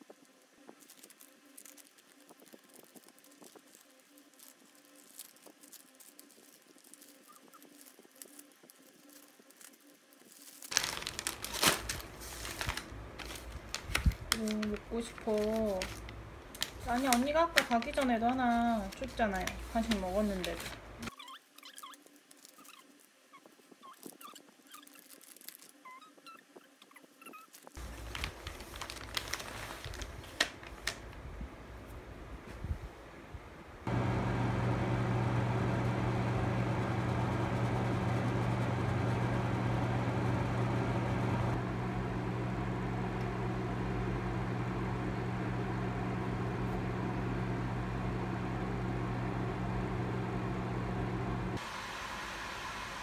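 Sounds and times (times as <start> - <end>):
plastic pouches crinkling: 0.0 - 26.3, 27.2 - 31.2
plastic packet taps and crinkles: 10.4 - 20.8, 27.8 - 31.1
short squeaky chirps: 21.1 - 25.1, 25.7 - 27.6.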